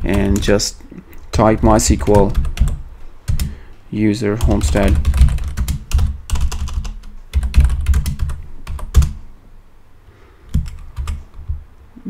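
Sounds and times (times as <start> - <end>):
computer keyboard typing: 0.0 - 3.6, 4.4 - 9.2, 10.5 - 11.6.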